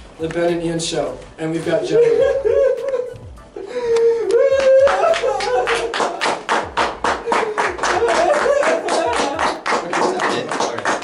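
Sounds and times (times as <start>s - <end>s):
fast hand clapping: 3.9s - 11.0s.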